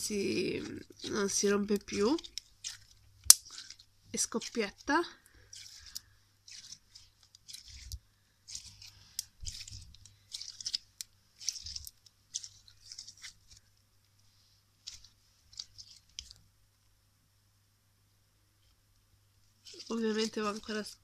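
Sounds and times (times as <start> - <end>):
slime popping and crackling: 0.0 - 13.7, 14.8 - 16.4, 19.6 - 21.0.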